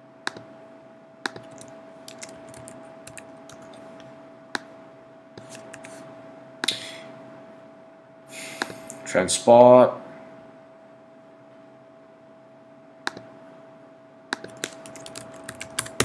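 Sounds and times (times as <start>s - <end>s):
faint steady hum: 0.0s - 16.0s
computer mouse clicks: 0.3s - 0.5s, 1.3s - 3.8s, 5.4s - 6.0s, 13.1s - 13.3s, 14.3s - 16.0s
keyboard typing: 1.3s - 4.0s, 5.4s - 6.0s, 14.4s - 16.0s.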